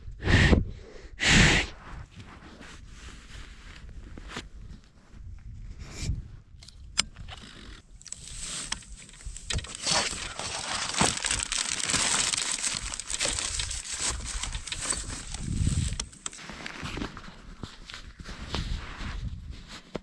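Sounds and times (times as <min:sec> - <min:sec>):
gear crinkling and rustling: 0:07.1 - 0:18.8.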